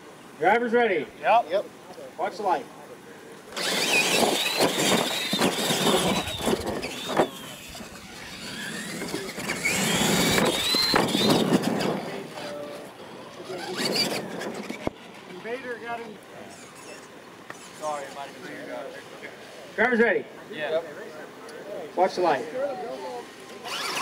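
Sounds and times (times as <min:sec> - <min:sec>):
electric motors whining: 0:03.4 - 0:19.7, 0:22.3 - 0:24.0
tyres scrabbling on dirt: 0:03.6 - 0:18.1.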